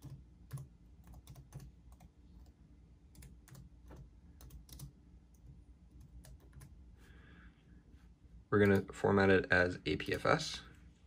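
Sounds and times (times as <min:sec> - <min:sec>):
keyboard typing: 0:00.0 - 0:06.8.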